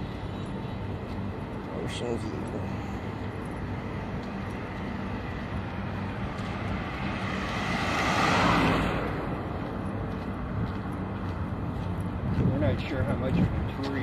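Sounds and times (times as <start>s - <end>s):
city traffic rumble: 0.0s - 14.0s.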